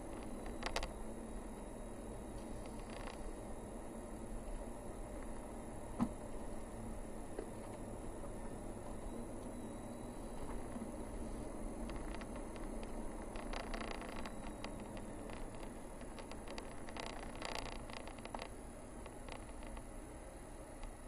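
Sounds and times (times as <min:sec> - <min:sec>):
ticks and light rattles: 0:00.0 - 0:01.0, 0:11.8 - 0:19.9
road and tyre rumble: 0:00.0 - 0:21.0.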